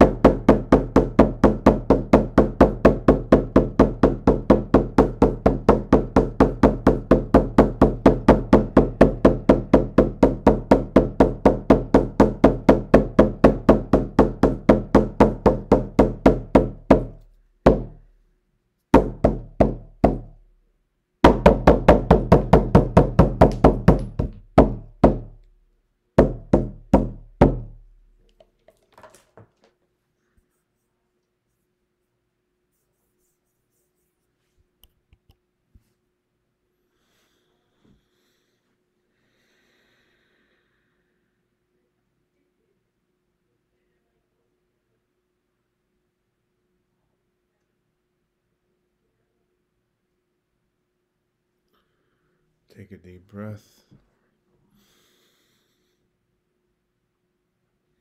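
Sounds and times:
frame drum beaten: 21.2 - 25.4.

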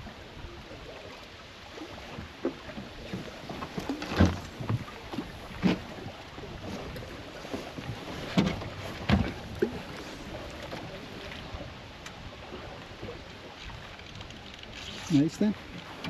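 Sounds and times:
water and wind against hull: 0.0 - 16.0
dull knocks on boat: 2.2 - 6.1, 7.8 - 9.8.

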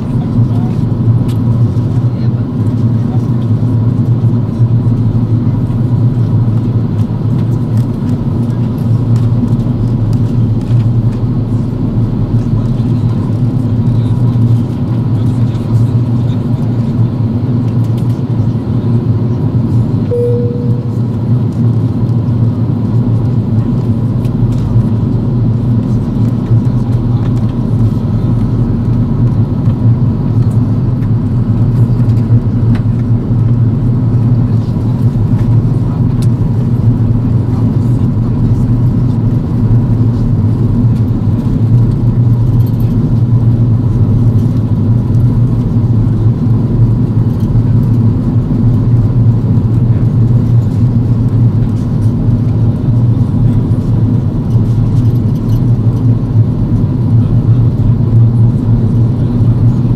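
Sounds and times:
airliner cabin drone: 0.0 - 59.9
faint short tone: 20.1 - 21.1.

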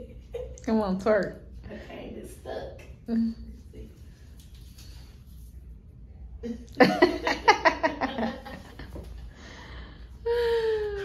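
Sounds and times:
woman laughing: 6.4 - 8.8.

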